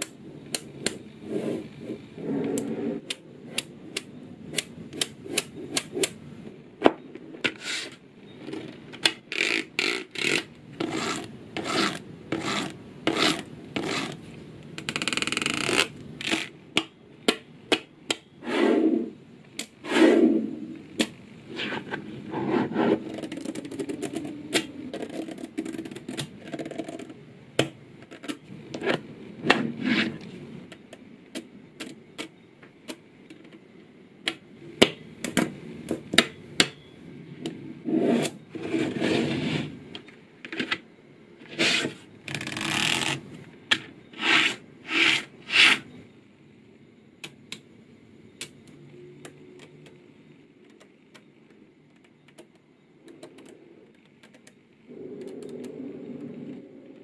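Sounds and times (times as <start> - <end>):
balls scraping on tabletop: 1.2 - 3.6, 7.3 - 8.8, 9.4 - 16.5, 18.4 - 19.2, 19.8 - 20.8, 21.5 - 27.2, 28.7 - 30.4, 37.5 - 39.9, 41.4 - 43.2, 44.1 - 46.0
rustling scrape: 7.4 - 8.0, 18.4 - 19.1, 19.8 - 20.6, 21.5 - 23.1, 29.5 - 30.4, 37.9 - 39.8, 41.4 - 42.0
magnetic balls clicking together: 8.8 - 18.3, 23.0 - 28.5.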